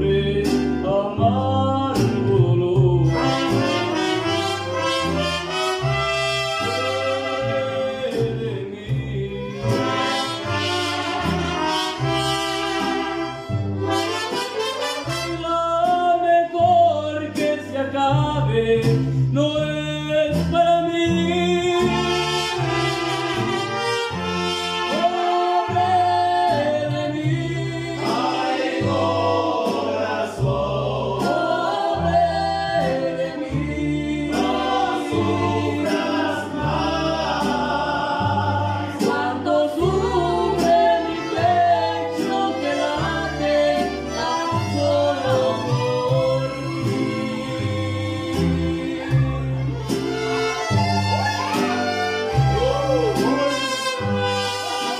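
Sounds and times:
guitars strumming: 0.0 - 54.9
plucked bass: 0.0 - 54.9
trumpets: 3.1 - 8.1, 9.6 - 15.7, 21.8 - 26.3, 49.3 - 54.9
person singing: 24.9 - 49.5, 51.4 - 54.9
violins: 40.9 - 54.9.

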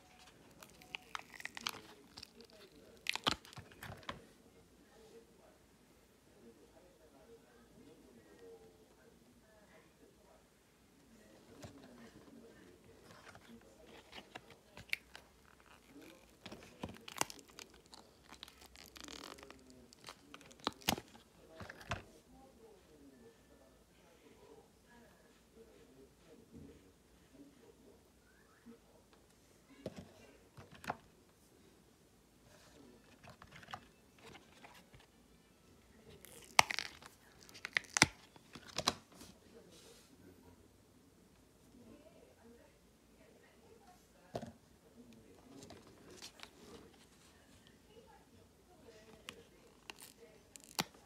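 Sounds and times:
soft rustling of handling: 0.0 - 5.6, 11.0 - 23.6, 28.4 - 31.7, 32.4 - 40.5, 43.6 - 51.0
resin peeling from mold: 0.1 - 4.1, 13.1 - 22.0, 36.2 - 39.0, 49.8 - 51.0.

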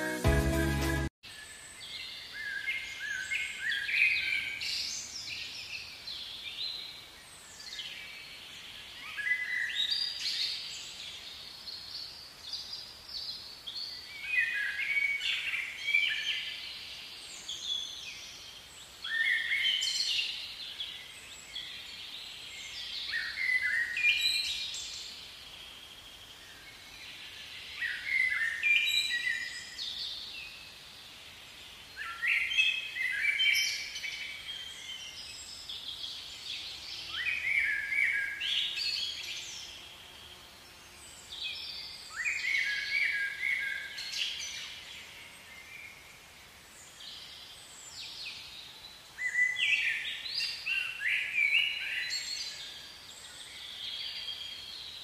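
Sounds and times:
faint outdoor background: 0.0 - 55.0
songbirds chirping and singing: 31.4 - 46.2.

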